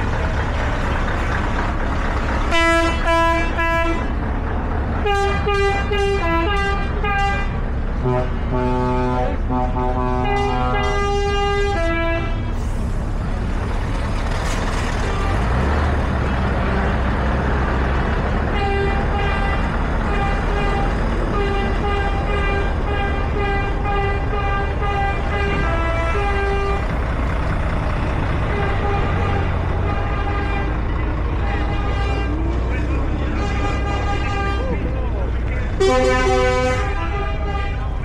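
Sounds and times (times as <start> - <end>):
diesel truck engines rumbling: 0.0 - 38.0
truck air horn blasts: 2.5 - 4.1, 5.0 - 12.8, 18.5 - 27.0, 28.4 - 30.8, 31.4 - 32.5, 33.2 - 34.8, 35.8 - 38.0.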